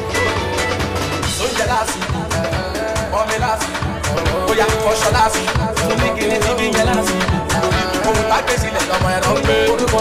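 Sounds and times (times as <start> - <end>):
upbeat dance music: 0.0 - 10.0.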